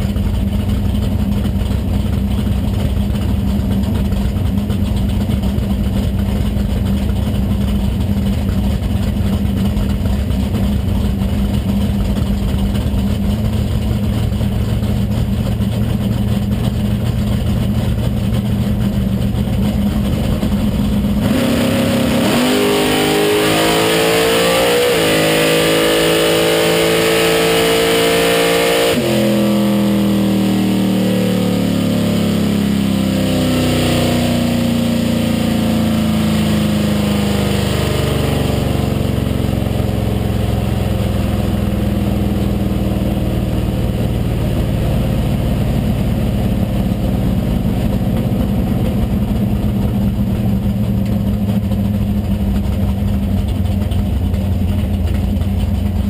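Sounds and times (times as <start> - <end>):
car engine revving then slowing: 11.2 - 56.0.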